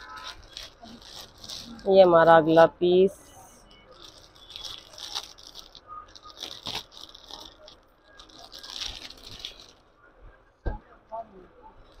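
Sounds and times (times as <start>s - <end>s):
plastic bag crinkling: 0.0s - 2.1s, 3.6s - 9.8s.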